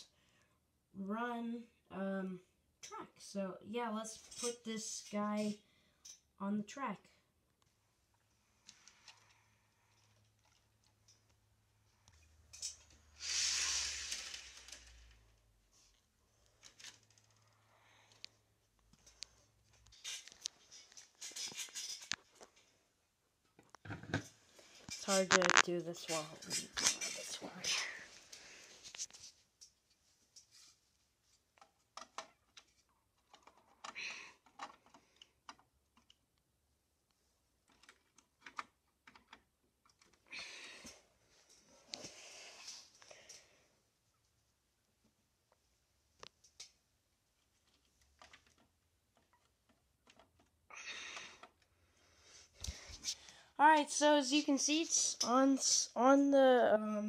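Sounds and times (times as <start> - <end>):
loud rustling scrape: 13.2 - 15.1
plastic scrape: 13.2 - 15.2, 24.8 - 27.3.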